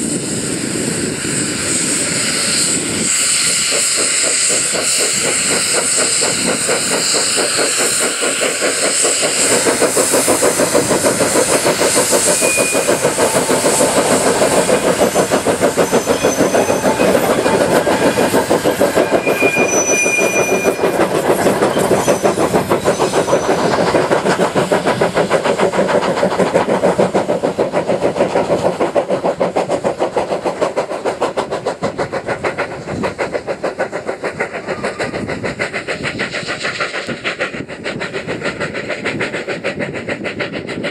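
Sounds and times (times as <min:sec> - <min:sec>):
steam locomotive chuffing: 0:00.0 - 0:40.9
high-pitched squeaks: 0:12.2 - 0:23.7.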